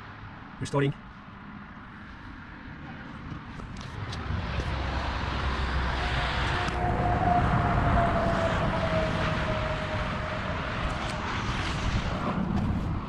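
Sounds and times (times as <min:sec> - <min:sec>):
motorway traffic passing: 0:00.0 - 0:13.0
vehicle whine passing by: 0:03.8 - 0:13.0.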